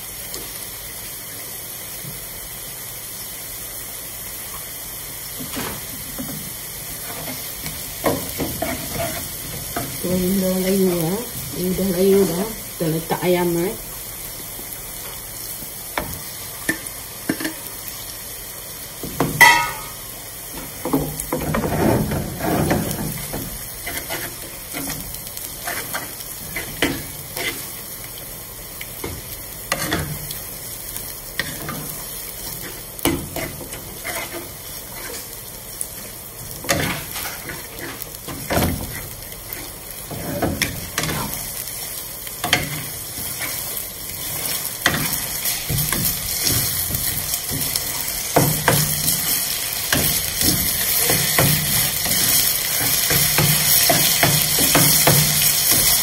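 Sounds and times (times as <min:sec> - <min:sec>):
chicken sizzling in a wok: 0:00.0 - 0:56.0
wooden spatula scraping a pan: 0:07.0 - 0:09.8, 0:20.9 - 0:27.8, 0:31.4 - 0:35.4, 0:36.6 - 0:41.4.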